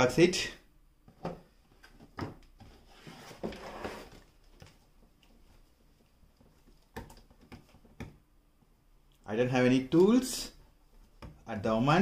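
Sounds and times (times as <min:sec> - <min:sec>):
cardboard box scraping rustle: 0:02.7 - 0:04.3.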